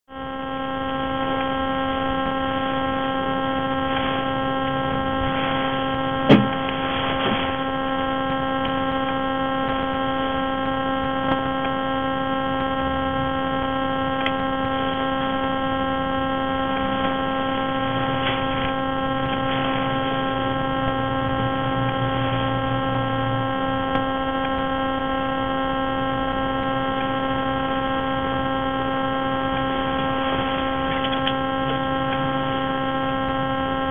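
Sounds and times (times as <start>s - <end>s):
electrical hum: 0.1s - 33.9s
sharp knock: 6.3s - 6.6s.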